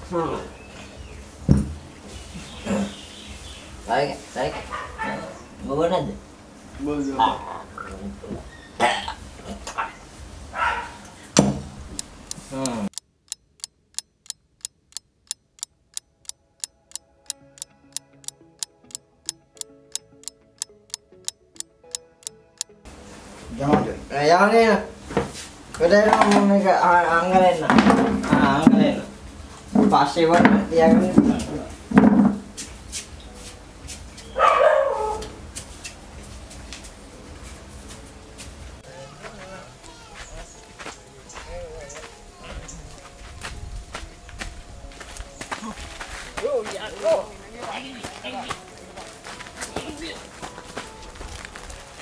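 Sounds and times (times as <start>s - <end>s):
dog barking: 4.6s - 5.4s, 9.8s - 11.1s, 34.3s - 35.4s
clock ticking: 11.8s - 22.7s
soft background music: 16.2s - 52.0s.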